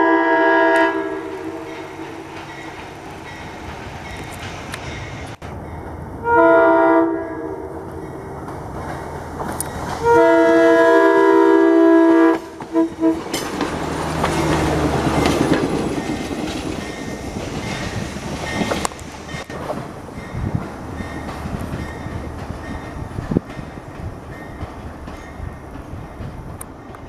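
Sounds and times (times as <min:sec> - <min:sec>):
train horn blasts: 0:00.0 - 0:02.8, 0:06.2 - 0:07.9, 0:10.0 - 0:13.4
railcar rumbling past: 0:00.0 - 0:27.0.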